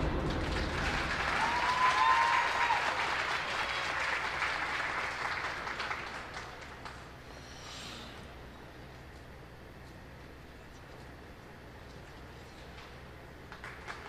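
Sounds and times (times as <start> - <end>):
audience applauding: 0.0 - 7.1, 13.5 - 14.0.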